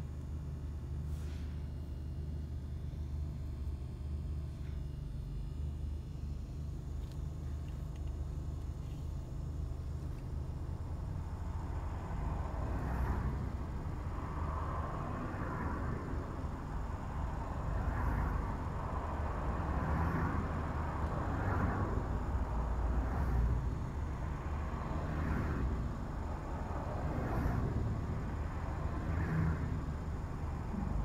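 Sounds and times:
car engine and tyre rumble: 0.0 - 31.0.

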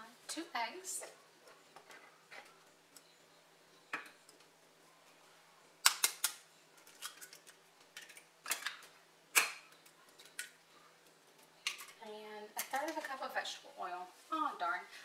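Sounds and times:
eggs cracking on a bowl rim: 5.8 - 10.6, 11.6 - 12.0.

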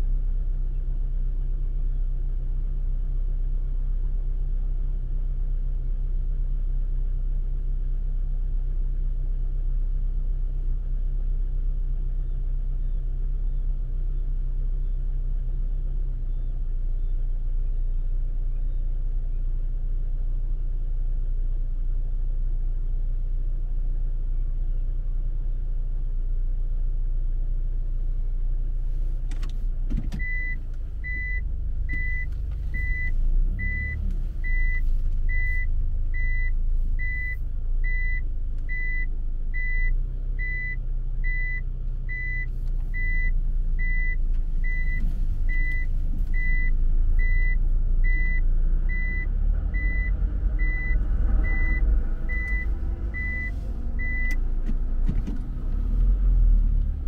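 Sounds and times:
car engine idling: 0.0 - 57.0
reversing beeper: 30.2 - 54.4.

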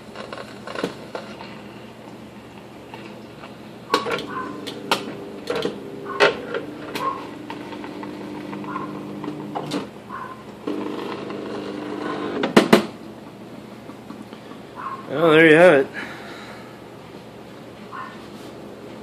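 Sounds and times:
stepper motors humming: 4.0 - 12.5.

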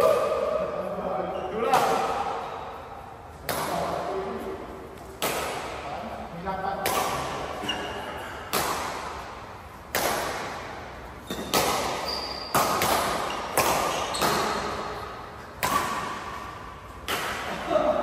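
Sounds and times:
rackets hitting shuttlecock with echo: 0.0 - 18.0
shoes squeaking on court: 7.1 - 8.5, 11.1 - 17.0.

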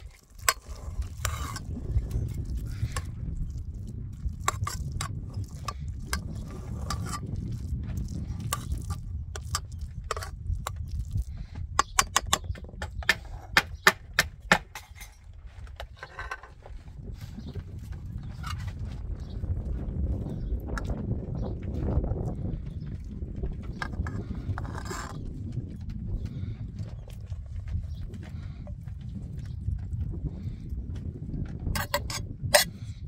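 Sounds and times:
metal skimmer scraping a pot: 0.0 - 3.2, 4.4 - 7.5, 31.7 - 32.8.

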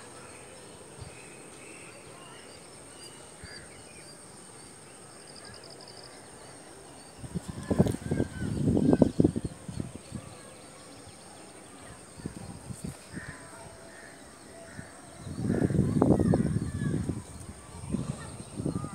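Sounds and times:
low wind buffeting on microphone: 7.2 - 10.6, 11.9 - 14.0, 14.7 - 18.9.

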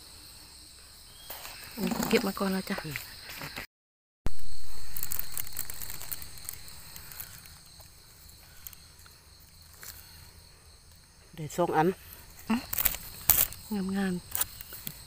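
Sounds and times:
insects droning: 0.0 - 3.7, 4.3 - 15.0
rustles and snaps of picking: 4.9 - 7.9, 12.6 - 13.6.

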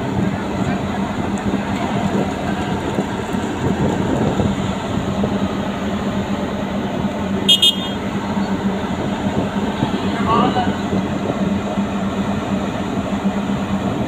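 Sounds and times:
cars rumbling down steel ramp: 0.0 - 14.0
constant hum: 0.0 - 14.0
high double beep: 7.5 - 8.0.

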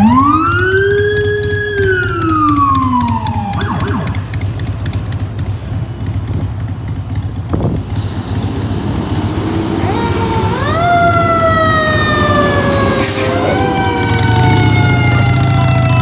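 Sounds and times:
electronic siren wail: 0.0 - 4.4, 9.7 - 16.0
low rumble of vehicle engines: 0.0 - 16.0
short siren chirps: 3.1 - 4.3.

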